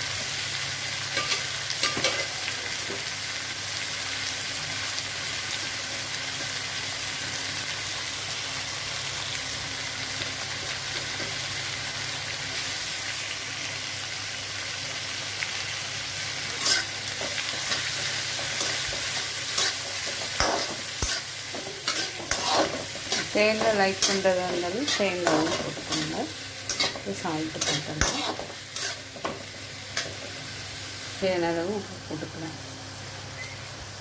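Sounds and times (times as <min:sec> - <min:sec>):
food sizzling in a pan: 0:00.0 - 0:34.0
metal spatula scraping pan: 0:16.6 - 0:16.9, 0:18.6 - 0:29.2.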